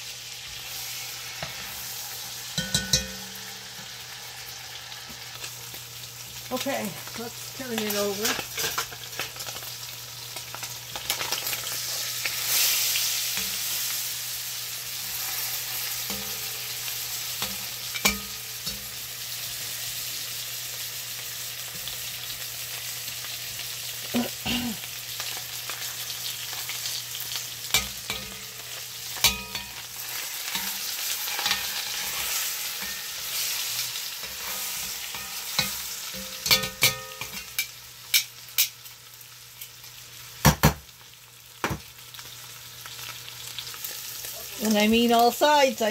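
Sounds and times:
meat sizzling in a pot: 0.0s - 45.9s
tongs scraping against pot: 6.5s - 9.5s, 25.7s - 38.7s.

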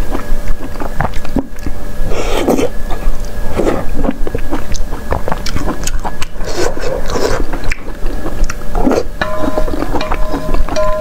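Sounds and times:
chewing and biting food: 0.0s - 11.0s
steady two-pitch tone: 9.2s - 11.0s.

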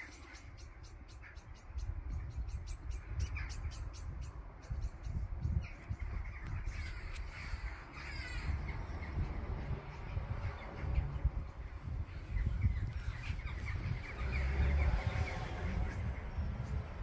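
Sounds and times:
steady low rumble: 1.8s - 17.0s
crows cawing: 6.3s - 9.0s.

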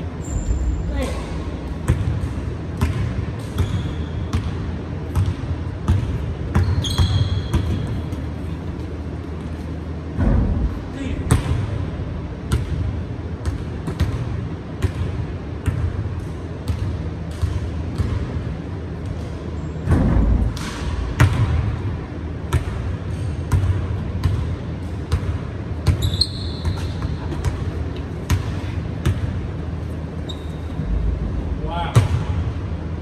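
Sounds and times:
sneakers squeaking: 0.1s - 9.9s, 22.5s - 31.0s.

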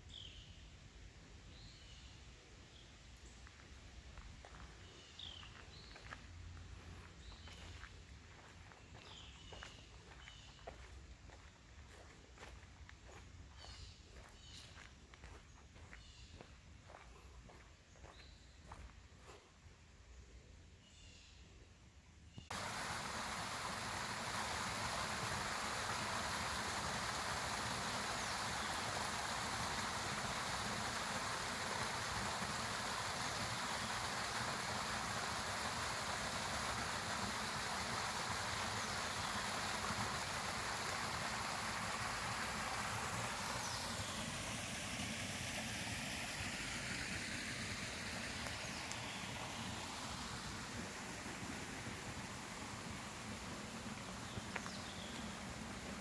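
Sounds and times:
stream splashing over rocks: 22.5s - 56.0s.

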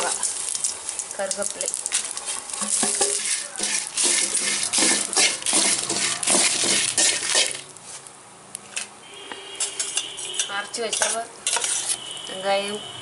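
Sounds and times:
spices frying in oil: 0.0s - 8.1s, 9.6s - 12.7s
metal spoon scraping a pan: 1.9s - 7.8s, 9.5s - 12.1s.

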